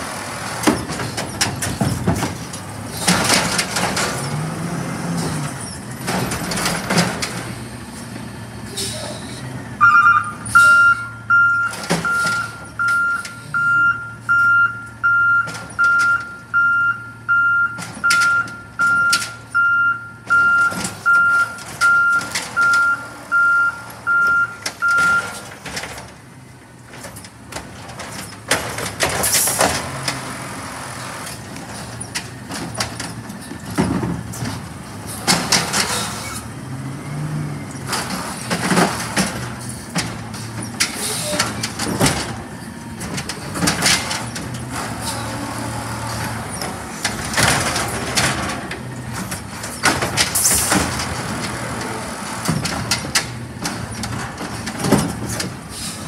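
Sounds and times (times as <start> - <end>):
reversing alarm beeping: 9.8 - 25.4.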